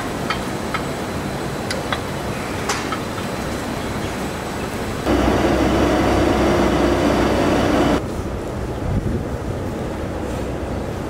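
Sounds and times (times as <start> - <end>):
mechanical hum: 0.0 - 11.0
loud machine drone: 5.0 - 8.0.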